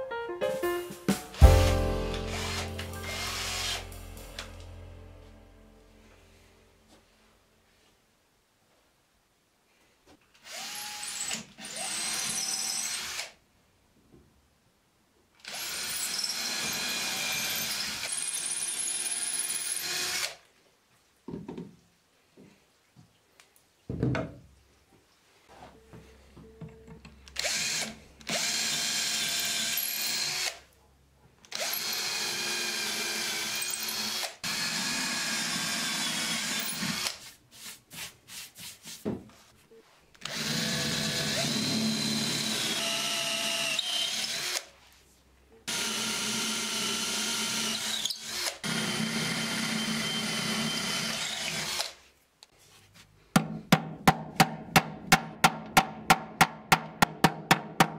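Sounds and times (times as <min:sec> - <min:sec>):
power drill running: 0:02.3 - 0:03.8, 0:10.4 - 0:13.3, 0:15.4 - 0:20.4, 0:27.4 - 0:30.6, 0:31.5 - 0:37.2, 0:40.2 - 0:44.7, 0:45.7 - 0:52.0.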